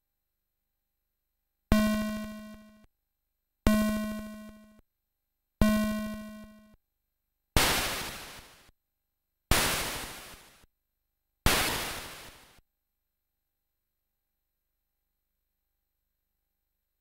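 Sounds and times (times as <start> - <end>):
buzzy square-wave beeps: 1.7 - 2.8
white-noise hiss bursts: 7.6 - 8.7, 9.5 - 10.6, 11.5 - 12.6.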